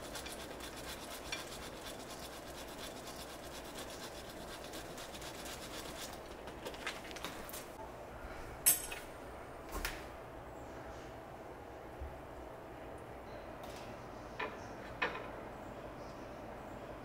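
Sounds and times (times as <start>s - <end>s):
cheese rasping on hand grater: 0.0s - 6.3s.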